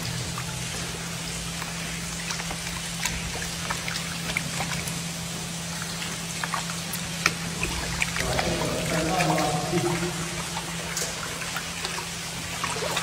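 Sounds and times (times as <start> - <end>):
low machine hum: 0.0 - 13.0
small drips and clicks: 0.0 - 13.0
water trickling: 0.0 - 13.0.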